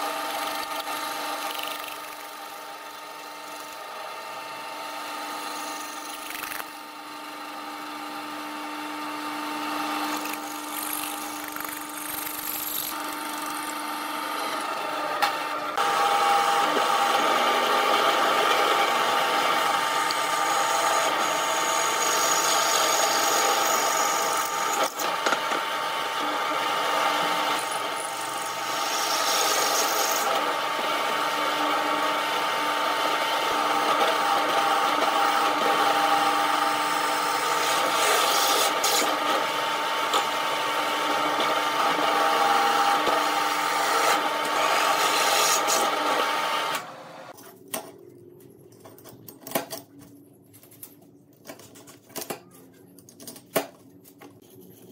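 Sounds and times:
drill press whine: 0:00.0 - 0:47.3
drill bit cutting steel: 0:09.6 - 0:47.2.

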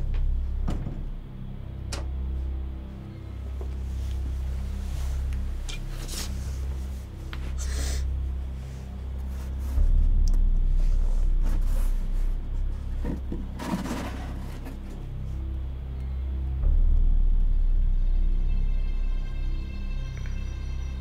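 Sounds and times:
low steady drone: 0:00.0 - 0:21.0
cardboard scraping and rubbing: 0:12.9 - 0:15.0.

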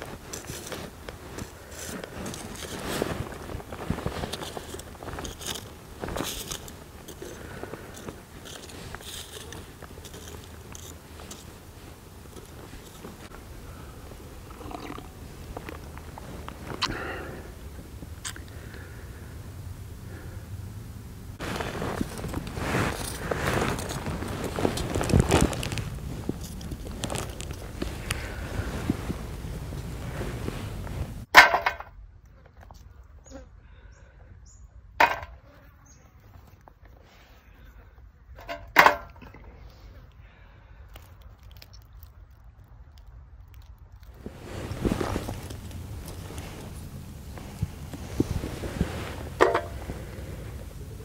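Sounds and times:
charcoal crunching and scraping: 0:00.0 - 0:18.9, 0:21.4 - 0:33.4, 0:36.2 - 0:51.0
steady low rumble: 0:00.0 - 0:31.3, 0:40.2 - 0:51.0
wind noise: 0:00.0 - 0:31.3, 0:43.4 - 0:51.0
charcoal rattling in metal tin: 0:01.4 - 0:11.5.

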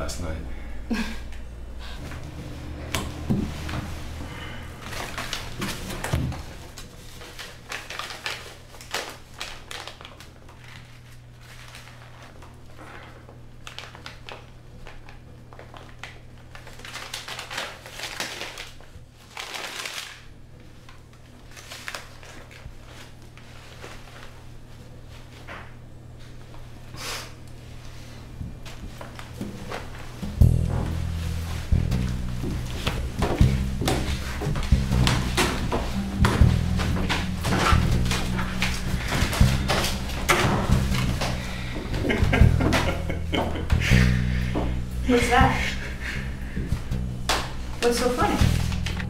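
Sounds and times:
steady low hum: 0:00.0 - 0:08.1, 0:24.3 - 0:49.0
tissue paper crinkling: 0:03.6 - 0:24.4.

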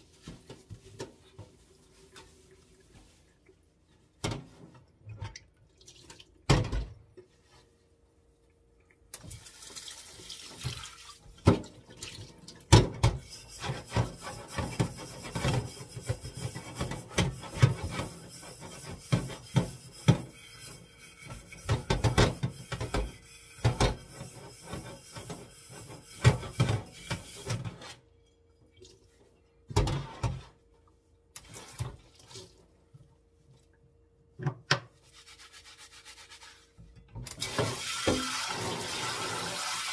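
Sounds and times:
tap water running into sink: 0:09.2 - 0:15.0, 0:37.3 - 0:39.9.

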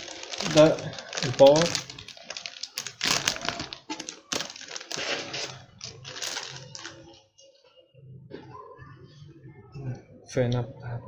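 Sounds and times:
plastic wrapping crinkling: 0:00.0 - 0:07.3.

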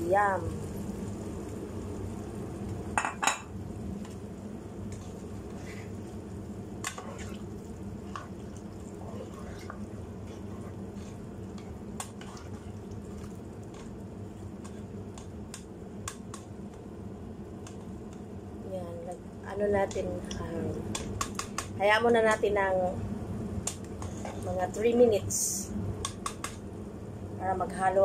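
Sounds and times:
spoon stirring food in pot: 0:04.9 - 0:16.5.

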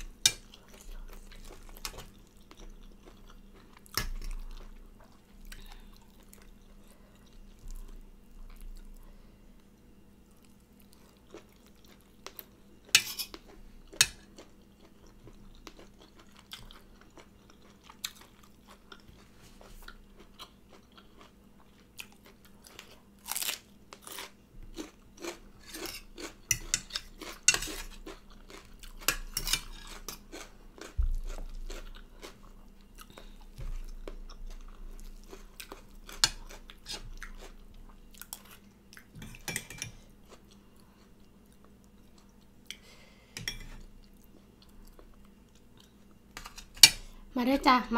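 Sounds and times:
chewing and crunching: 0:00.3 - 0:42.9, 0:43.6 - 0:47.2
cutlery scraping a plate: 0:12.9 - 0:13.4, 0:25.6 - 0:28.0, 0:29.0 - 0:30.2, 0:39.2 - 0:40.0, 0:43.4 - 0:43.8, 0:46.4 - 0:47.0.

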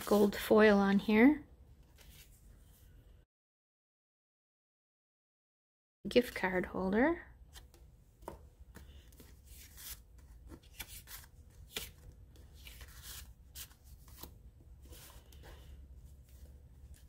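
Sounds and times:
paper rustling and sliding: 0:08.7 - 0:17.0.

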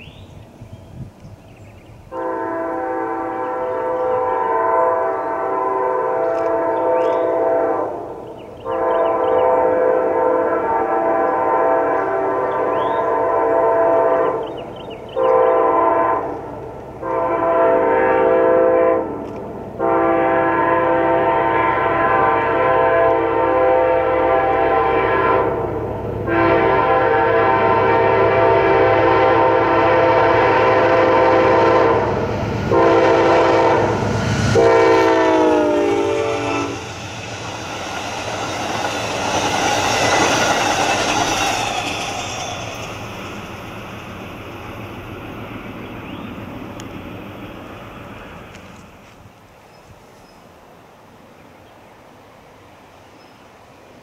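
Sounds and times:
low rumble of train: 0:00.0 - 0:54.0
train horn blasts: 0:02.1 - 0:37.0.

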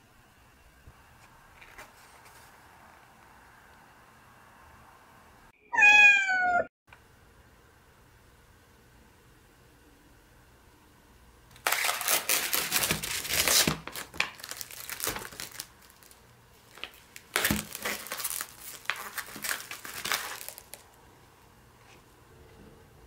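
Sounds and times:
plastic film crinkling: 0:11.5 - 0:21.0.

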